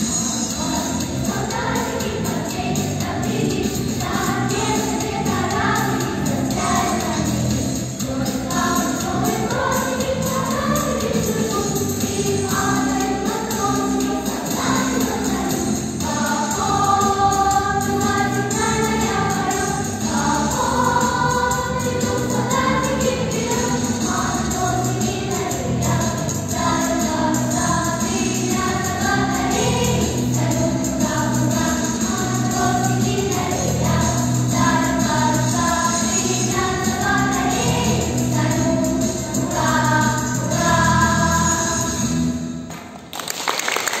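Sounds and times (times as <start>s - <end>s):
instrumental accompaniment: 0.0s - 43.1s
children's choir singing: 0.0s - 43.2s
applause: 42.7s - 44.0s.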